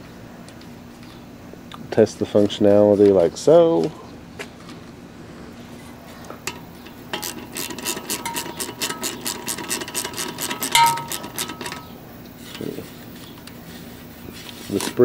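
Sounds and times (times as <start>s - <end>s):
recoil starter pulley clicking: 6.4s - 12.0s
metal clank: 6.4s - 12.7s.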